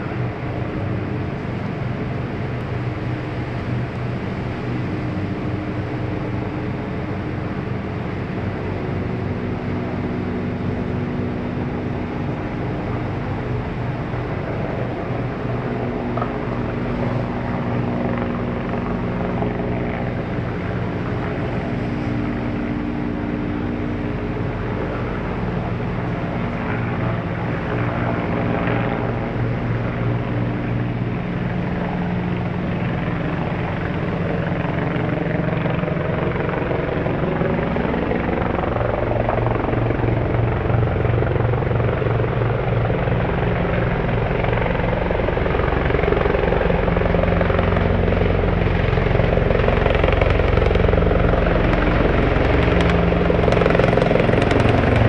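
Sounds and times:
helicopter rotor and engine: 0.0s - 55.0s
steady mechanical hum: 0.0s - 55.0s.

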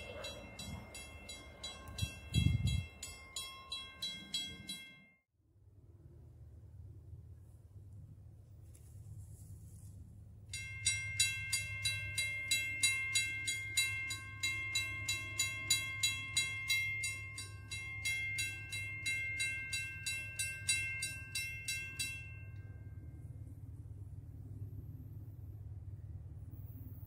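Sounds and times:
railroad crossing bell ringing: 0.0s - 5.2s, 10.5s - 23.8s
faint low rumble: 5.5s - 10.5s, 22.5s - 27.0s.

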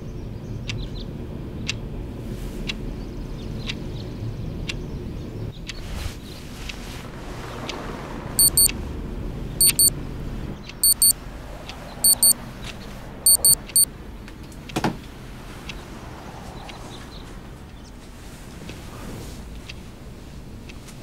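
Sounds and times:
alarm clock beeping: 8.4s - 8.7s, 9.6s - 9.9s, 10.8s - 11.1s, 12.1s - 12.4s, 13.3s - 13.9s.

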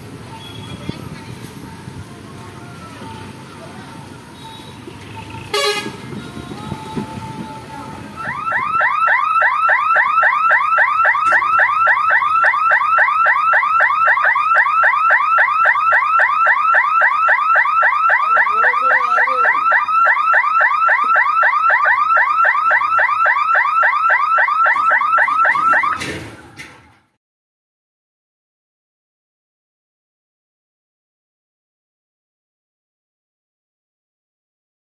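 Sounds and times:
level crossing alarm chirps: 8.2s - 26.0s.

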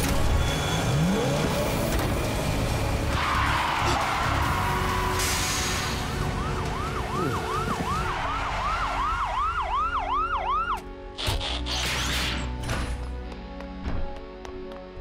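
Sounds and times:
cartoon police siren yelping: 6.8s - 10.8s.

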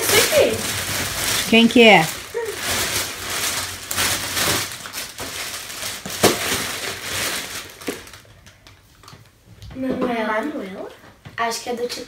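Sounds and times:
sharp paper crackle: 0.0s - 9.3s
wrapping paper crinkling: 0.0s - 9.4s.

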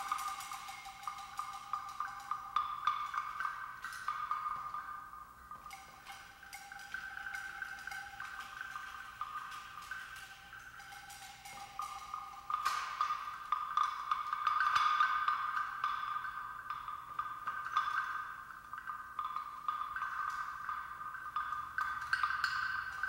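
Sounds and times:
metal percussion ringing: 0.0s - 16.3s.

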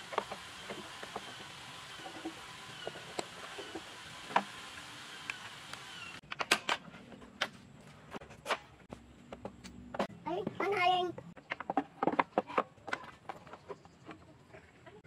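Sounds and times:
steady hiss: 0.0s - 6.2s.

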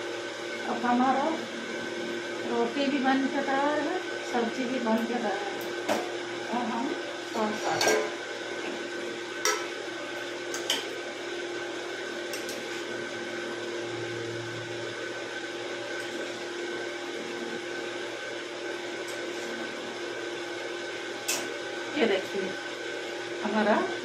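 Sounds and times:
steady hum: 0.0s - 24.0s.

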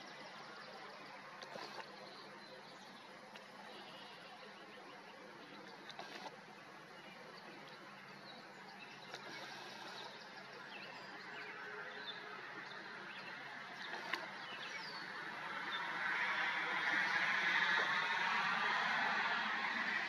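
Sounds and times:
steady outdoor noise: 0.0s - 20.0s
faint bird chirps: 1.5s - 15.1s.

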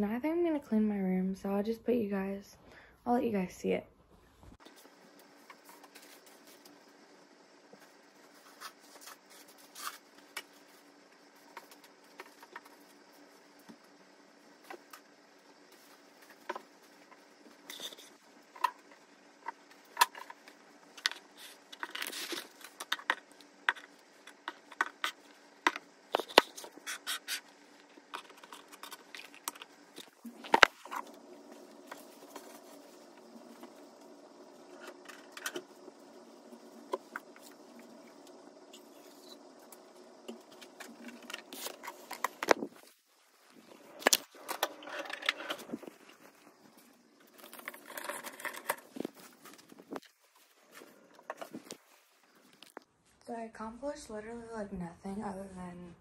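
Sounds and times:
faint steady hum: 0.0s - 56.0s
objects knocking and scraping: 47.3s - 50.1s.

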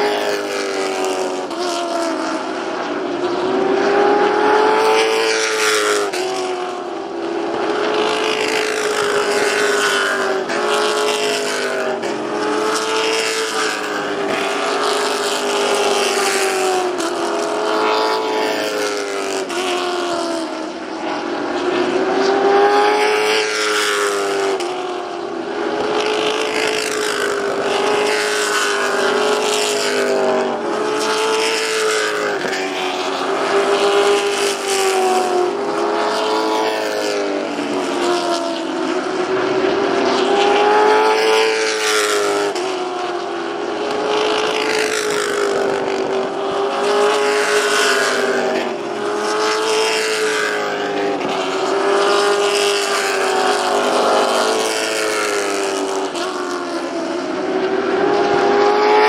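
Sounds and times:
race car engines at high revs: 0.0s - 59.0s.

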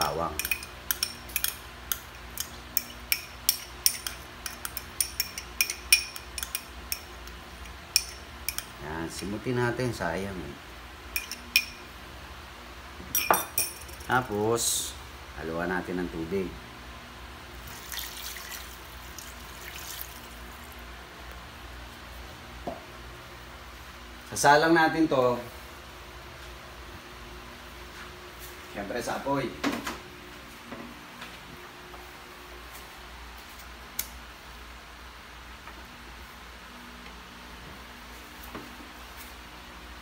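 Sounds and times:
metal spoon clinking glass bowl: 0.3s - 8.8s, 11.1s - 11.9s, 13.1s - 14.1s
water trickling into a pot: 17.6s - 20.6s.

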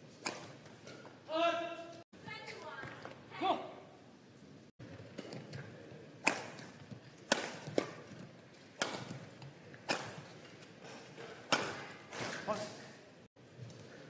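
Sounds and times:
rackets smacking shuttlecock: 0.2s - 1.1s, 5.1s - 12.5s.

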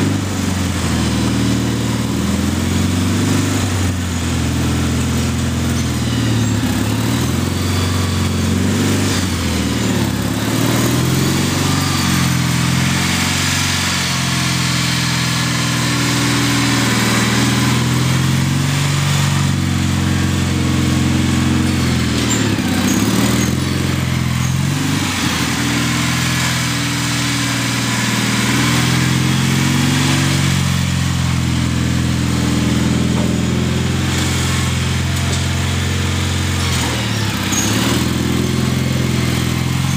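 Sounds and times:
garden tractor engine running: 0.0s - 39.9s.

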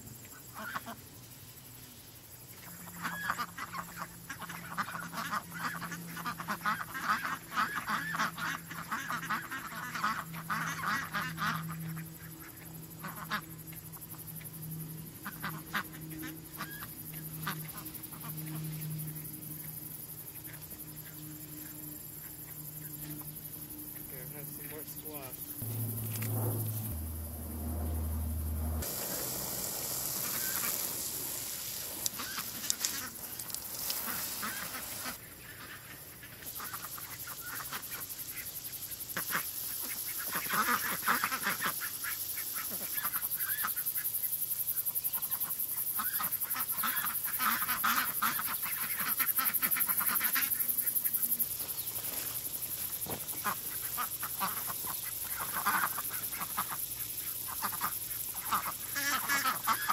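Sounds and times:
ducks quacking: 2.6s - 13.6s, 15.2s - 18.6s, 32.0s - 33.2s, 33.8s - 38.5s, 39.1s - 44.1s, 45.4s - 51.2s, 53.0s - 59.9s.

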